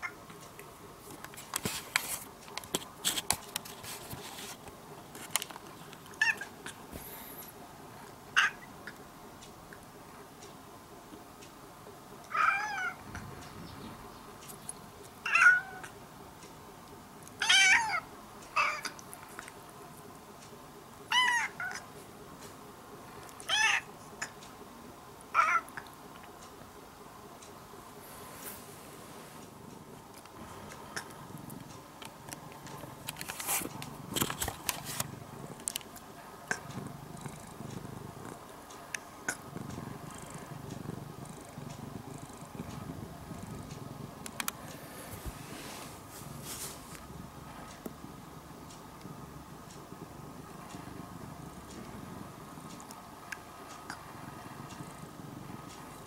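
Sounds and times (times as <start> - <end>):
cat meowing: 12.3 - 13.0, 15.2 - 15.8.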